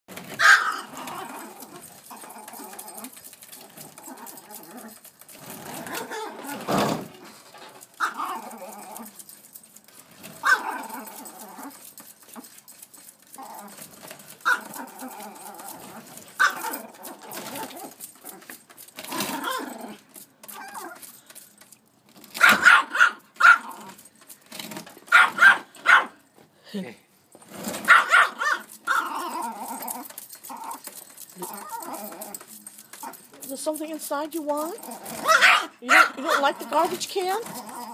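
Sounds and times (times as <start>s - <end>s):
small dog barking: 0.4s - 1.0s, 8.0s - 8.4s, 10.4s - 10.8s, 14.4s - 14.8s, 16.4s - 16.8s, 22.4s - 23.8s, 25.1s - 26.2s, 27.9s - 29.2s, 35.2s - 36.7s.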